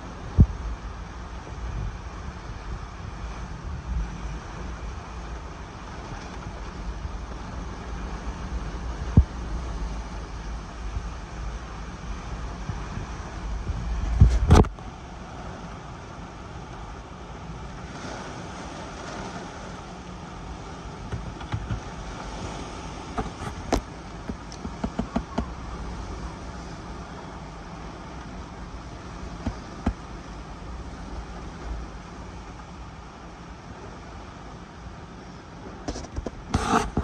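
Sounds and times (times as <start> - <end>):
buffeting wind gust: 0.0 - 33.9
wind rushing around a car: 0.0 - 37.0
sharp knocks and taps: 21.1 - 21.9, 23.2 - 25.5.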